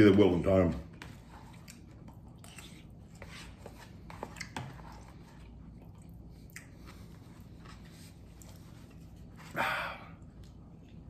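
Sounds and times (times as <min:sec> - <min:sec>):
man chewing food: 0:01.2 - 0:11.0
wet mouth clicks and smacks: 0:05.8 - 0:06.8.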